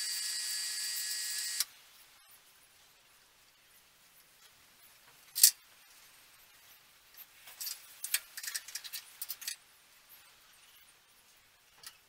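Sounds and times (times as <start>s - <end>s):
light clicks and scrapes: 4.4s - 10.9s
metal parts and tools handled: 5.3s - 5.6s, 7.1s - 9.6s.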